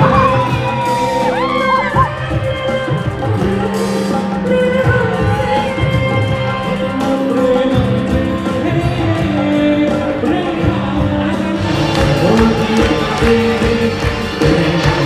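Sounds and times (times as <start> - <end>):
drums: 0.0 - 15.0
electric guitar: 0.0 - 15.0
keyboard: 0.0 - 15.0
man singing: 0.0 - 15.0
woman singing: 0.0 - 15.0.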